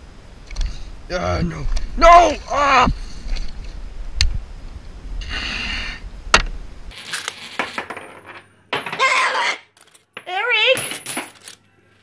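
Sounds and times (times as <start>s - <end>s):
coins clinking on wooden shelf: 6.9s - 9.1s, 9.8s - 11.7s.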